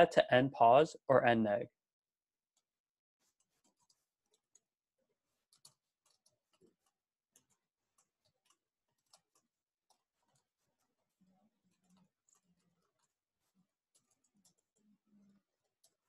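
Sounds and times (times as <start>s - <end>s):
keyboard typing: 3.2s - 4.7s, 5.3s - 16.0s.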